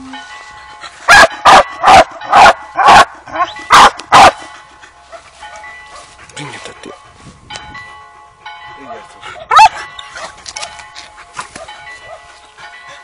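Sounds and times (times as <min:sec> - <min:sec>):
dog barking: 0:01.1 - 0:04.4, 0:09.3 - 0:10.4, 0:11.5 - 0:12.4.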